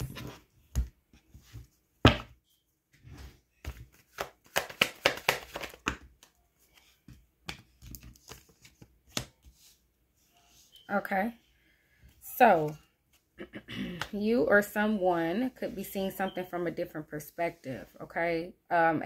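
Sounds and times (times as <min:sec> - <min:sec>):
cards being shuffled by hand: 0:03.6 - 0:09.8.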